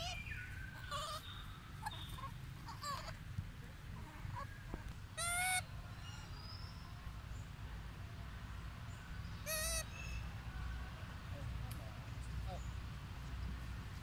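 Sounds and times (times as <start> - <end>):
monkey squealing: 0.0 - 3.2, 4.0 - 5.6, 9.5 - 9.8.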